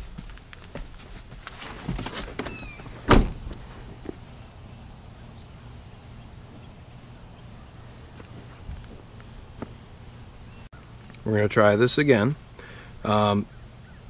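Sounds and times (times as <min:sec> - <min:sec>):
small knocks and rustles: 0:00.0 - 0:04.2
car door shutting: 0:02.2 - 0:03.6.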